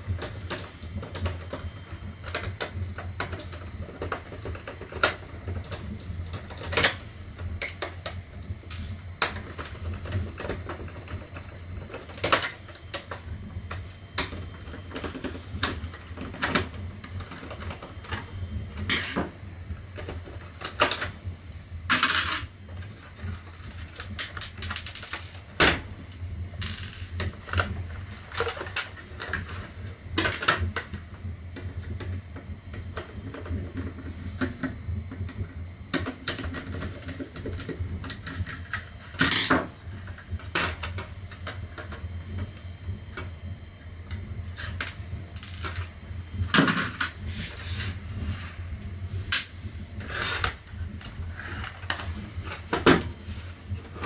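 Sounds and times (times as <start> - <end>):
steady low hum: 0.0 - 54.0
plastic parts clicking and knocking: 0.2 - 18.2, 21.9 - 25.9, 44.6 - 45.9.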